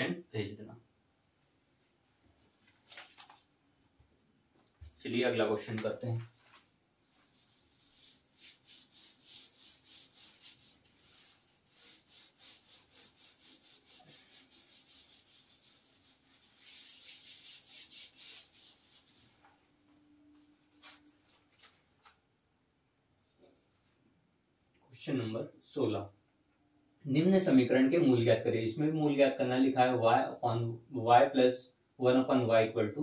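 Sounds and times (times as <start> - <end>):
cloth wiping whiteboard: 4.8 - 22.2.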